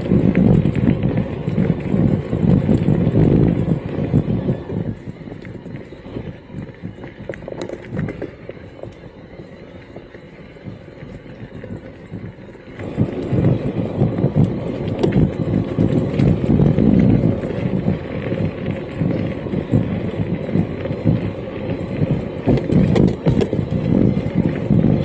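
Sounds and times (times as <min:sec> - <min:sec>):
bike clicks and rattles: 0:00.0 - 0:25.0
mountain bike rumble on trail: 0:00.0 - 0:25.0.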